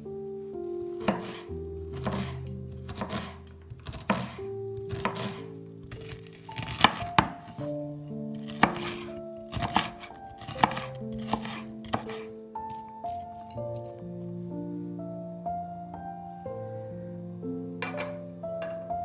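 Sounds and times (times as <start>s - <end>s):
soft background music: 0.0s - 19.0s
knife striking cutting board: 1.0s - 7.7s, 8.4s - 12.3s, 17.8s - 18.8s.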